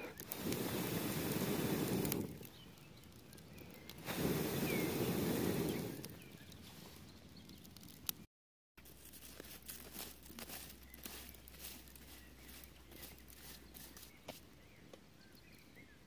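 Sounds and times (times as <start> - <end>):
wind rumbling on microphone: 0.0 - 8.2
campfire crackling and popping: 0.0 - 16.0.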